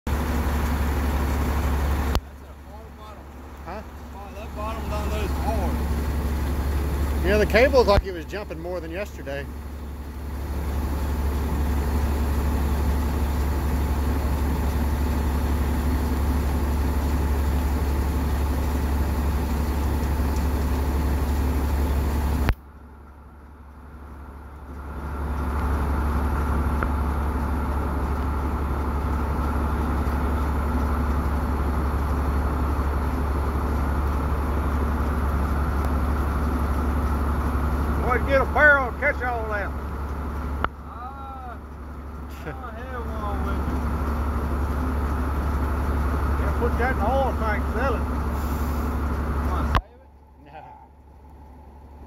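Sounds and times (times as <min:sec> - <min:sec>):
engine low drone: 0:00.0 - 0:52.0.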